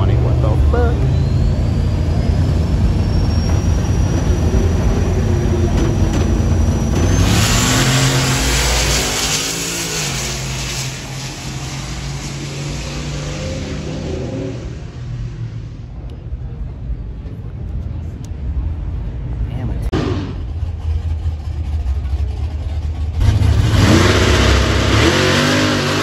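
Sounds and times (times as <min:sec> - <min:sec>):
truck engine rumbling and launching: 0:00.0 - 0:16.0, 0:19.9 - 0:26.0.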